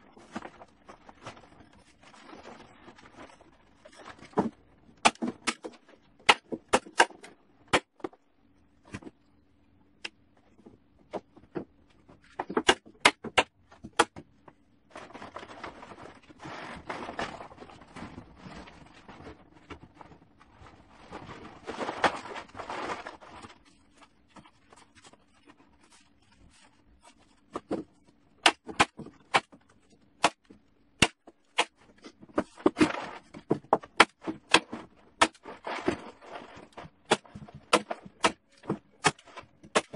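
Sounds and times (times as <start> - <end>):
plastic tarp rustling: 0.0 - 4.8, 14.9 - 27.4, 34.8 - 37.1.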